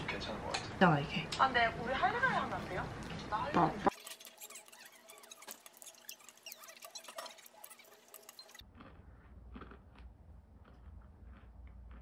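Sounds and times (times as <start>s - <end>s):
wet chewing: 3.9s - 12.0s.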